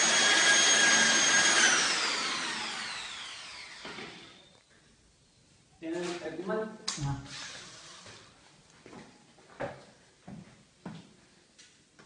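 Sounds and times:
drill motor winding down: 0.0s - 4.6s
power drill whining: 0.0s - 4.6s.

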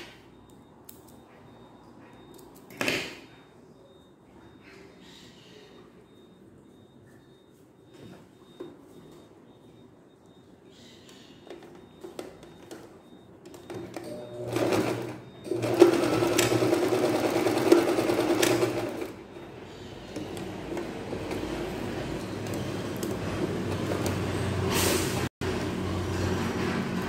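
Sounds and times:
sewing machine stitching: 14.0s - 19.2s.

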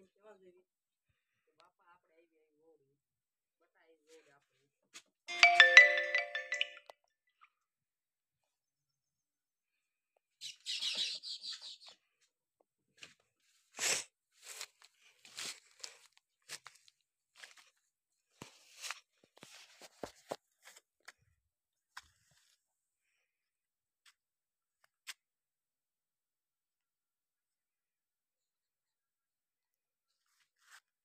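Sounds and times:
footsteps through dry weeds: 13.4s - 20.8s.

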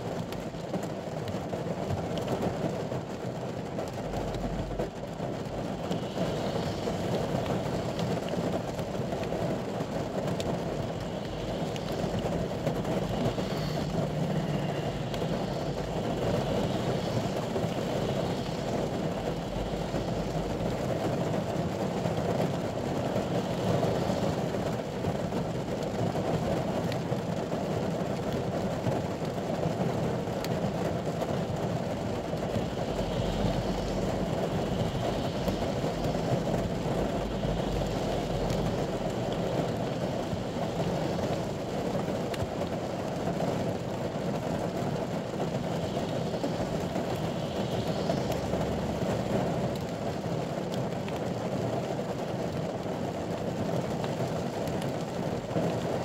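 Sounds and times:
rain on vehicle roof: 0.0s - 56.0s.

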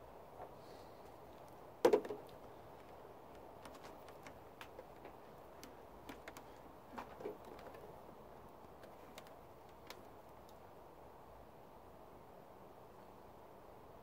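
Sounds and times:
low steady hiss: 0.0s - 14.0s
light clicks and taps: 2.2s - 10.6s.

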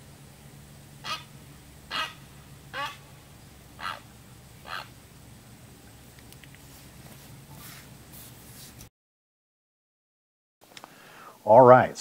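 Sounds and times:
heron squawking: 1.0s - 5.2s.

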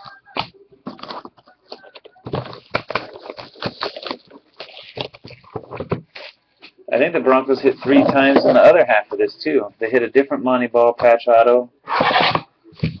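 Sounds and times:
plastic wrap crinkling and tearing: 2.4s - 5.5s.

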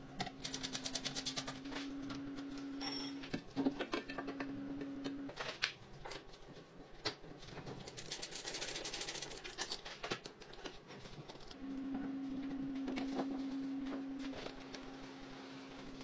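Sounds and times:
steady low hum: 10.9s - 16.0s.

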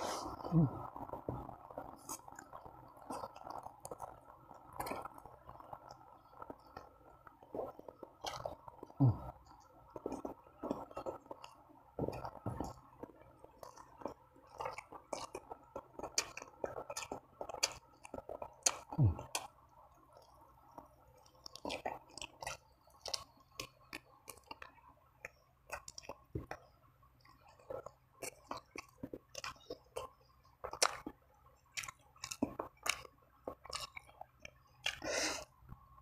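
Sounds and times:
person chewing food: 0.0s - 35.9s
wet mouth smacks and clicks: 33.6s - 35.1s.

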